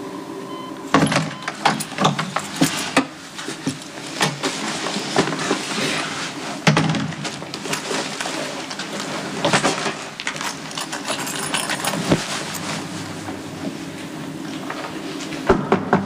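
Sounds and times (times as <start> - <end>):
rustling: 7.2 - 15.4.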